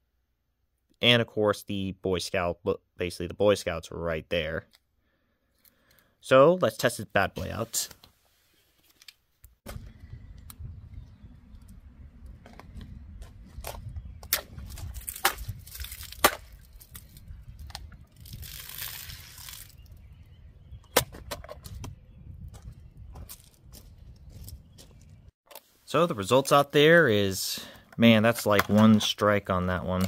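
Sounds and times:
wind rumble on microphone: 0:09.7 - 0:25.3.

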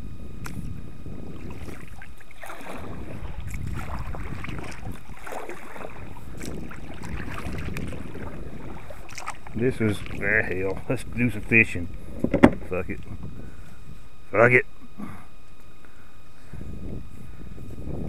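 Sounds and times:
wind buffeting microphone: 0:00.0 - 0:14.2, 0:16.4 - 0:18.0
water splashing around kayak: 0:00.4 - 0:13.7.

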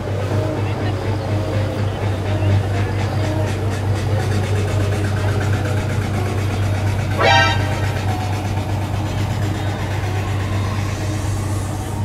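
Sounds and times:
boat engines droning: 0:00.0 - 0:12.0
high-pitched rising call: 0:07.1 - 0:08.3.

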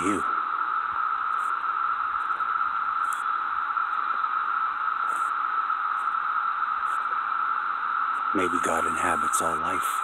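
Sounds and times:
cicadas droning: 0:00.0 - 0:10.0.

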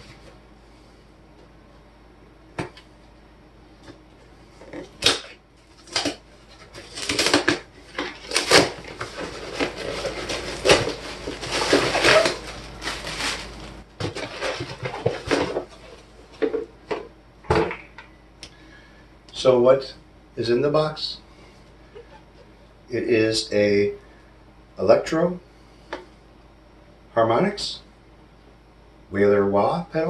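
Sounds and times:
paper packing rustling: 0:04.6 - 0:16.6
cardboard ripping and knocking: 0:05.0 - 0:15.8.

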